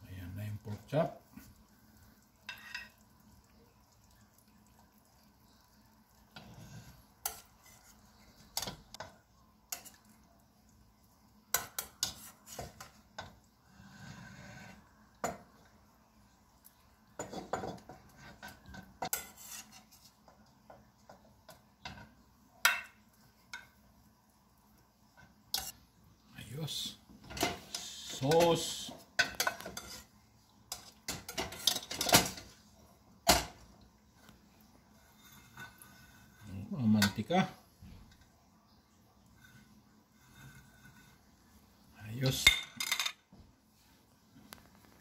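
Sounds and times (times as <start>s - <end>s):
metal spoon scraping pot: 2.5s - 3.0s, 6.4s - 8.1s, 11.6s - 13.0s, 18.2s - 20.1s, 29.3s - 30.1s, 35.0s - 37.2s, 39.4s - 41.3s.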